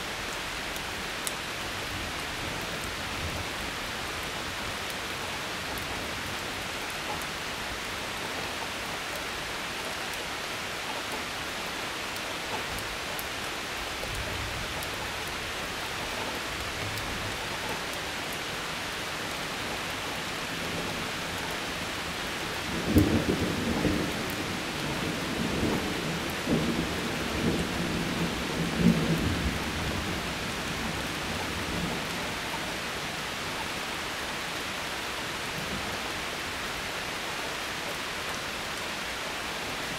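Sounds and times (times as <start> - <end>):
heavy rain: 0.0 - 39.9.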